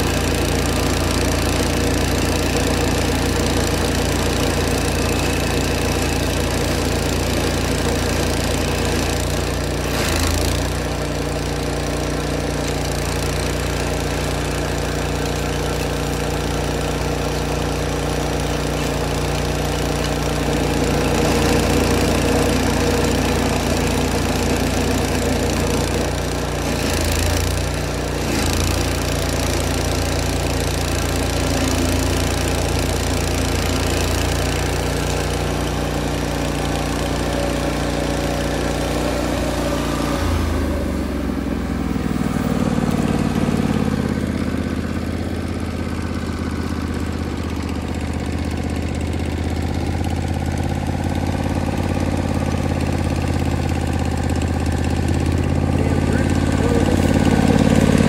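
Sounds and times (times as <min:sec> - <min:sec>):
stump grinder engine running: 0:00.0 - 0:58.0.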